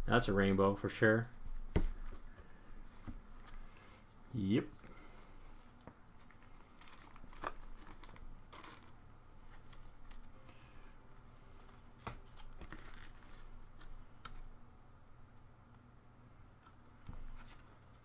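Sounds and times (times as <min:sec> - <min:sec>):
cards rustling and scraping: 0:01.5 - 0:10.4, 0:11.5 - 0:14.5, 0:16.6 - 0:18.0.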